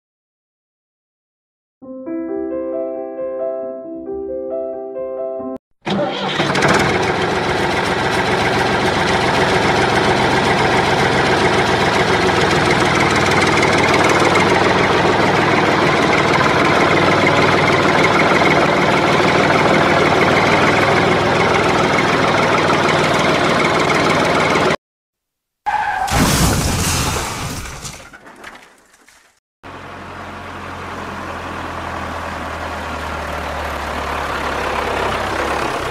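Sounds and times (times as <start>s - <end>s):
tractor engine running: 5.8s - 24.8s, 27.9s - 35.9s.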